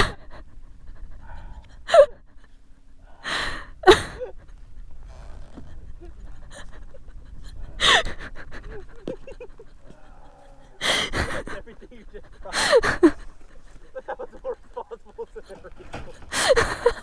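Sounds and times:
noisy breath in: 0.0s - 3.8s
person laughing breathlessly: 0.0s - 17.0s.

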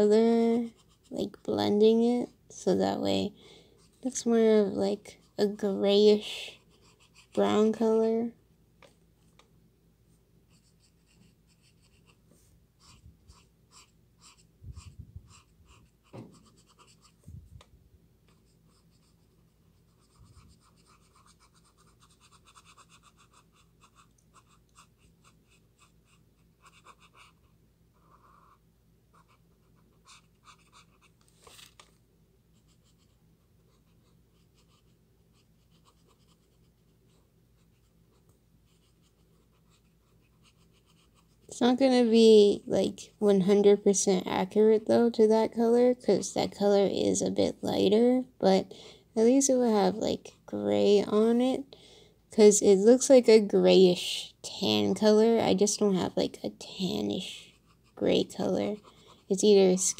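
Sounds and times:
marker scratching on paper: 0.5s - 1.4s, 5.0s - 7.8s, 10.5s - 17.3s, 18.3s - 31.7s, 32.5s - 41.5s, 56.8s - 59.9s.

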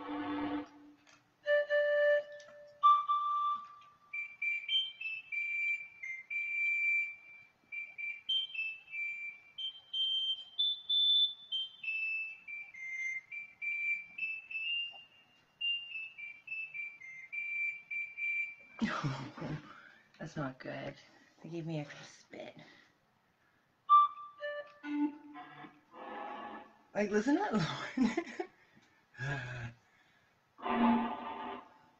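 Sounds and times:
electronic wind instrument panpipes: 0.0s - 18.7s, 23.9s - 26.8s, 30.6s - 31.9s.

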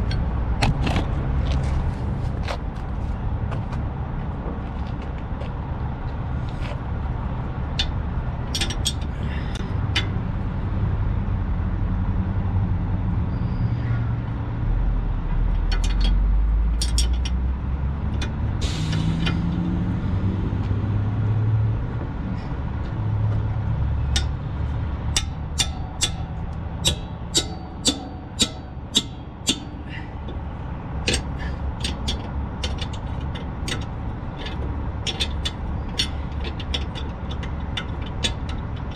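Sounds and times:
low engine rumble: 0.0s - 38.9s
wrench clicking on metal: 7.8s - 10.2s, 15.6s - 16.2s, 16.8s - 17.4s, 24.1s - 24.4s, 25.1s - 30.4s, 31.1s - 38.9s
short air hiss: 18.6s - 19.2s.

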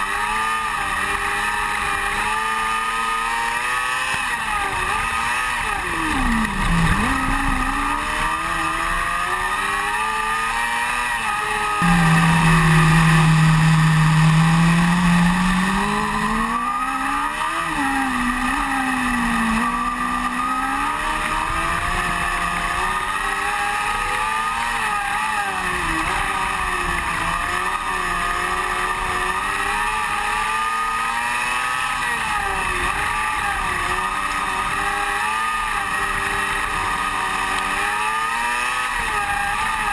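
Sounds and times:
race car engine revving: 0.0s - 39.9s
low loud drone: 5.8s - 9.5s, 11.8s - 22.0s.

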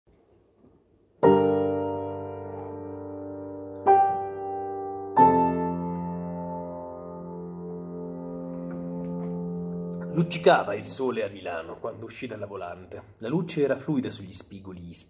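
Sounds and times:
grand piano chords ringing: 1.2s - 12.0s.

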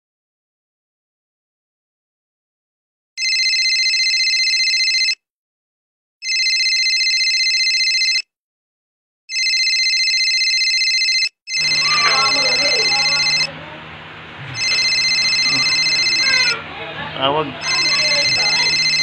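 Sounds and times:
smartphone ringing: 3.2s - 5.2s, 6.2s - 8.3s, 9.3s - 16.6s, 17.6s - 19.0s.

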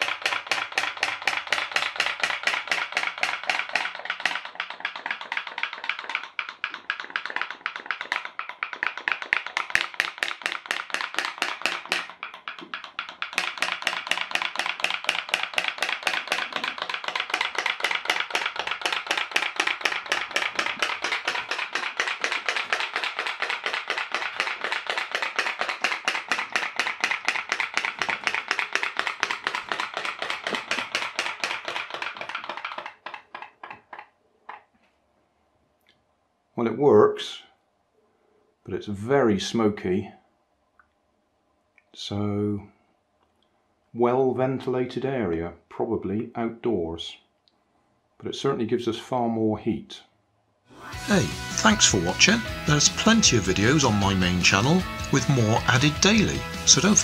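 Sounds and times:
steam boat popping: 0.0s - 34.6s, 51.1s - 57.0s.

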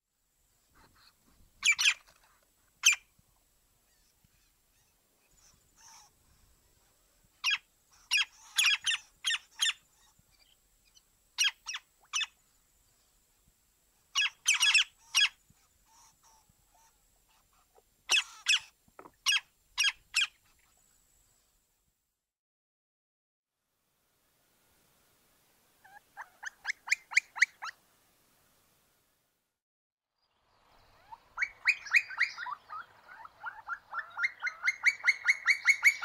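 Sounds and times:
bird calling: 30.8s - 36.0s.

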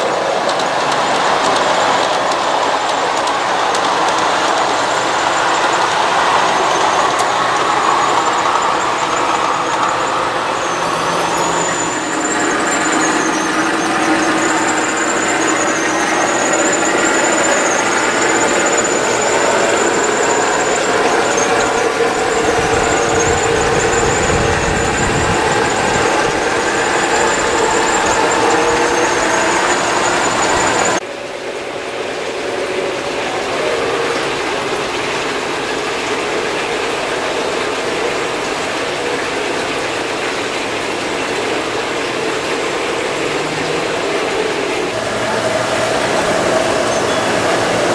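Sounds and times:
model train rolling rumble: 0.0s - 47.9s
wheel flange squeal: 0.0s - 47.9s.

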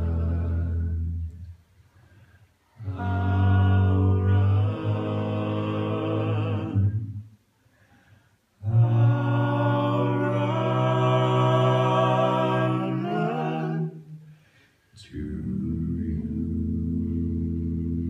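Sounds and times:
men singing a cappella: 0.0s - 1.2s, 2.8s - 7.2s, 8.6s - 14.3s, 15.0s - 18.0s.

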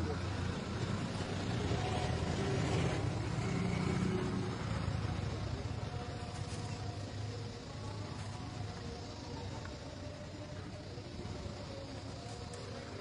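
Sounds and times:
noisy hiss: 0.0s - 13.0s.

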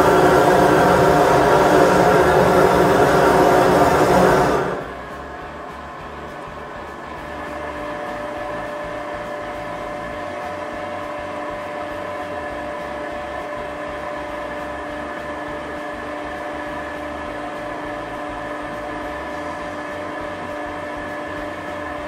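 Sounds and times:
air rushing through coals: 0.0s - 11.0s
air blower whirring hum: 0.0s - 22.0s.

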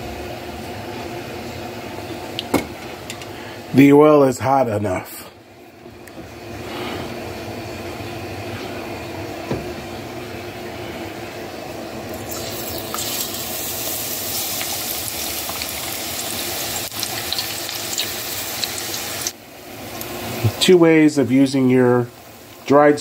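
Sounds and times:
hot oil sizzling: 11.8s - 23.0s.

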